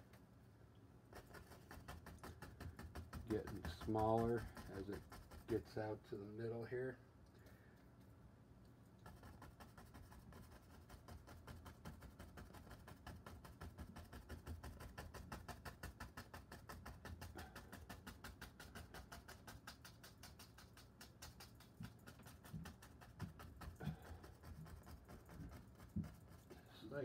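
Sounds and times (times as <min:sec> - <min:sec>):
brush tapping on canvas: 0:01.1 - 0:06.0, 0:09.0 - 0:27.0.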